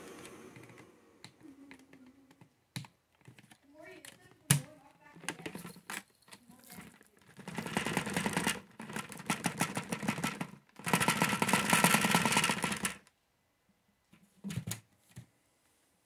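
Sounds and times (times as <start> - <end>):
plastic beads rattling: 5.2 - 13.0.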